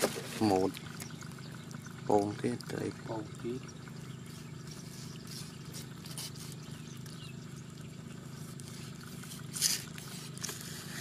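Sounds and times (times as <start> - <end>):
steady low hum: 0.0 - 11.0
wet squelches of gutting fish: 3.4 - 11.0.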